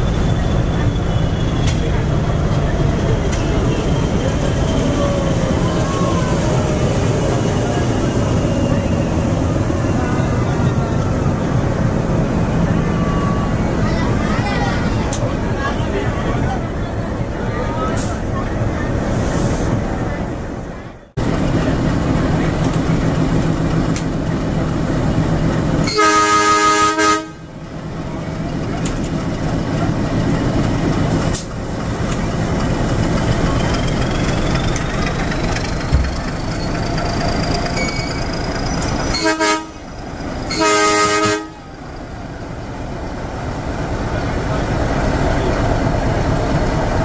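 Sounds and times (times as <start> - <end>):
locomotive horn blasts: 25.9 - 27.5, 39.1 - 39.8, 40.5 - 41.6.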